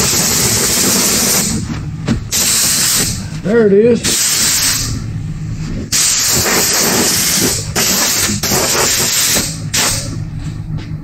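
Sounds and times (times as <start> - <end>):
compressed air blow gun hissing: 2.3 - 3.2, 4.1 - 4.9, 5.9 - 10.1.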